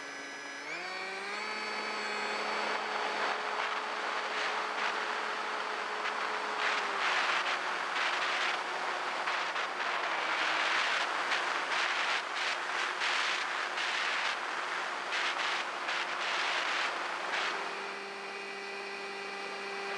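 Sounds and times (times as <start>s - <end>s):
electric motor and propeller running: 0.0s - 19.9s.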